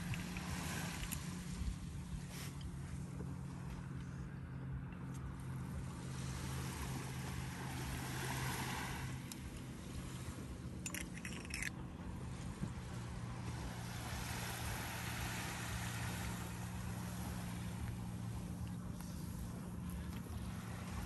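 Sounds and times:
low engine-like hum: 0:00.0 - 0:21.0
wind: 0:00.0 - 0:21.0
rattle of clicks: 0:10.8 - 0:11.7.

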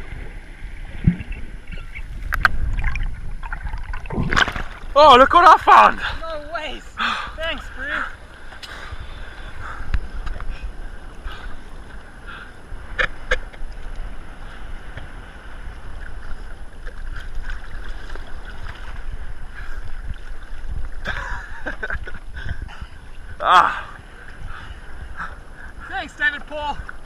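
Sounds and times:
sea water sloshing: 0:00.0 - 0:06.2, 0:07.6 - 0:21.2
wind rumbling on microphone: 0:00.0 - 0:27.0.

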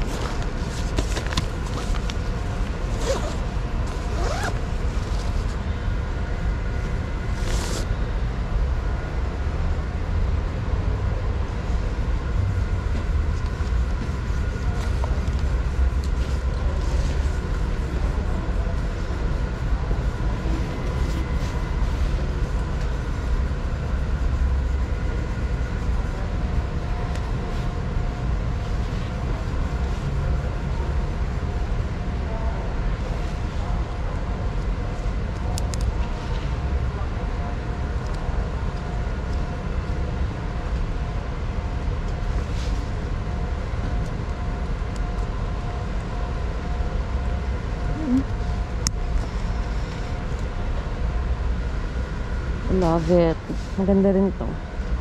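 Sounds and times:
zipper pulled: 0:02.9 - 0:04.6, 0:07.4 - 0:07.9.

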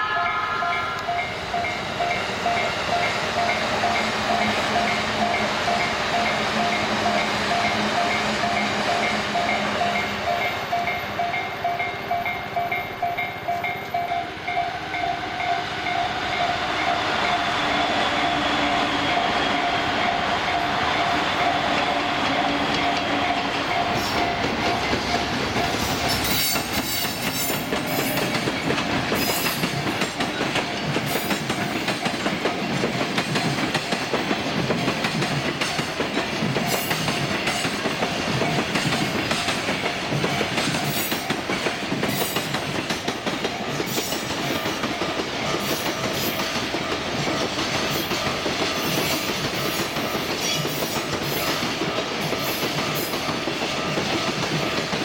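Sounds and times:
level crossing warning bell: 0:00.0 - 0:17.6, 0:22.8 - 0:33.7
train wheels clattering over rails: 0:16.8 - 0:55.0.

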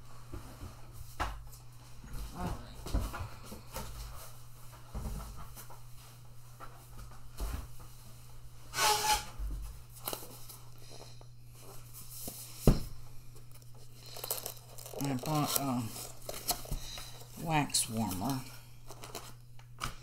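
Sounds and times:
steady low hum: 0:00.0 - 0:20.0
rummaging in cardboard box: 0:13.8 - 0:19.4.

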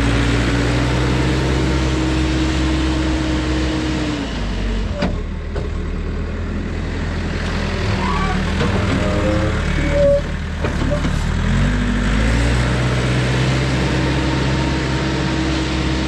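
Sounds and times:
diesel engine running: 0:00.0 - 0:16.0.

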